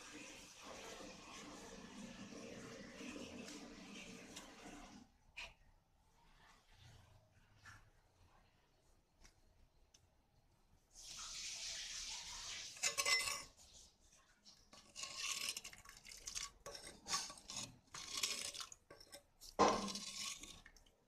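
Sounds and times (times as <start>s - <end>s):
ladle scraping a pot: 11.2s - 21.0s.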